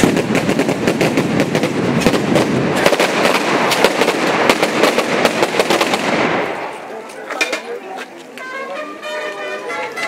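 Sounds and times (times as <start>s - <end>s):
firecrackers going off: 0.0s - 7.8s.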